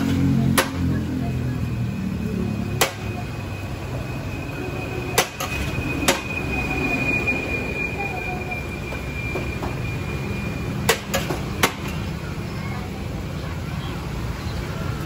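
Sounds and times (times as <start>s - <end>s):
steady low rush: 0.2s - 15.0s
thin high whine: 1.3s - 12.3s.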